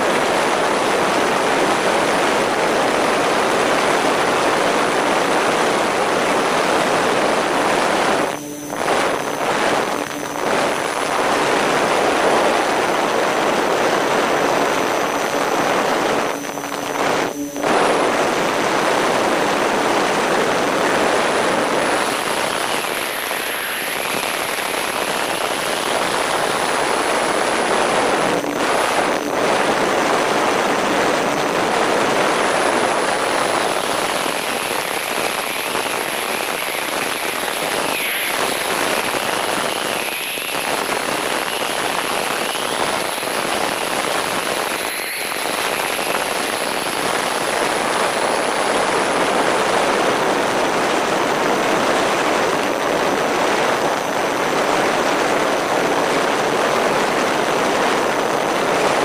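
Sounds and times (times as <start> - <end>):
airflow rushing over microphone: 0.0 - 34.3
faint propeller whine: 0.2 - 37.6.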